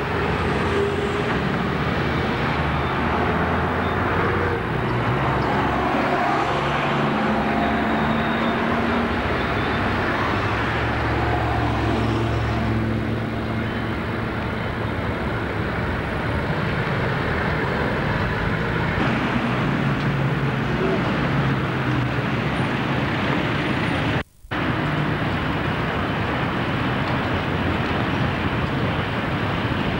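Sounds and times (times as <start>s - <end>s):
bus diesel engines droning: 0.0s - 29.9s
road noise hiss: 0.0s - 29.9s.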